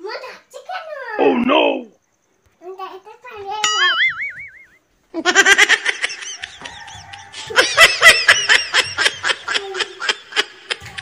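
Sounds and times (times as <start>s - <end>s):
person snickering laughter: 5.2s - 11.0s.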